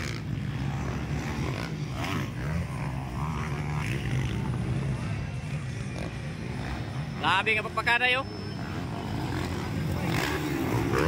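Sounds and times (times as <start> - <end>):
dirt bike engines droning: 0.0 - 11.0.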